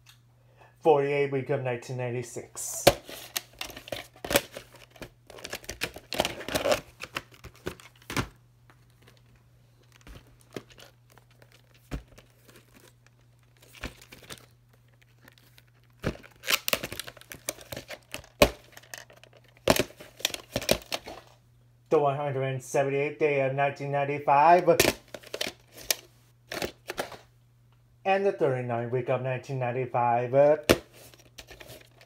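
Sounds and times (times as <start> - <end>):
faint steady hum: 0.0 - 32.0
plastic cases rustling and scraping: 2.8 - 21.4, 24.8 - 27.3, 30.6 - 32.0.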